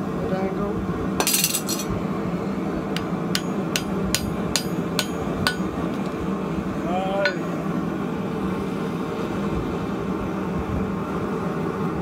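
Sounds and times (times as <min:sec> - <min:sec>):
steady hum: 0:00.0 - 0:12.0
hammer striking iron on anvil: 0:03.0 - 0:06.1, 0:07.2 - 0:07.5.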